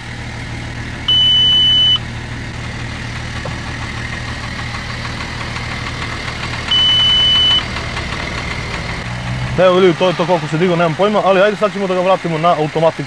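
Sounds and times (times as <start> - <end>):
diesel engine idling: 0.0 - 13.0
high-pitched beeps: 1.1 - 2.0, 6.7 - 7.6.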